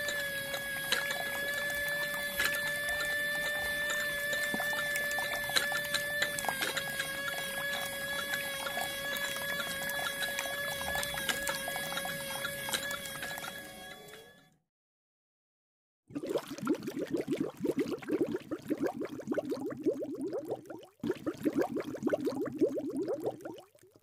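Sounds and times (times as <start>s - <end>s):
water splashing into tank: 0.0s - 14.2s, 16.1s - 24.0s
small motor whine: 0.0s - 14.6s.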